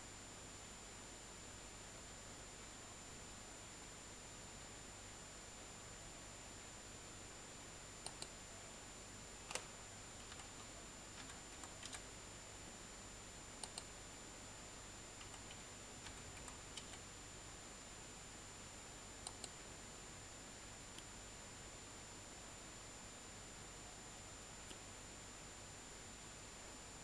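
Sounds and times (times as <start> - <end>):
faint steady hiss: 0.0 - 27.0
mouse clicks: 8.0 - 8.4, 9.5 - 10.6, 13.6 - 13.9, 19.2 - 19.6.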